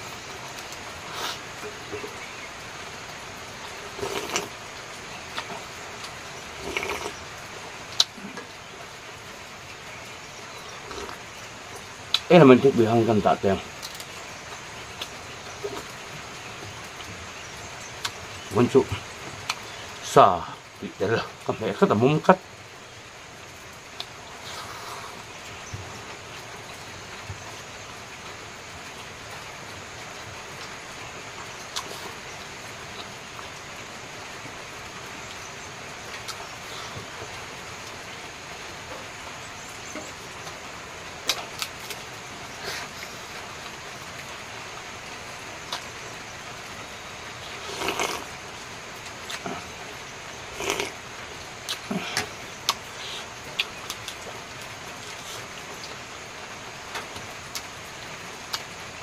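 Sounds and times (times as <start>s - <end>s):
background hiss: 0.0s - 59.0s
person chewing: 3.9s - 4.5s, 5.4s - 7.2s, 47.5s - 48.3s, 50.5s - 51.0s, 51.7s - 54.2s.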